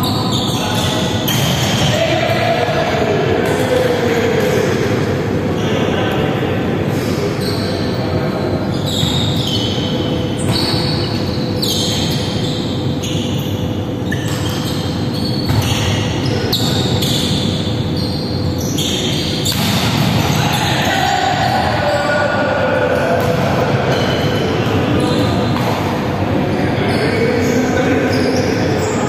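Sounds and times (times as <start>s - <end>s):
shoes squeaking on wooden court: 0.0s - 2.0s, 7.4s - 20.7s, 23.9s - 25.7s.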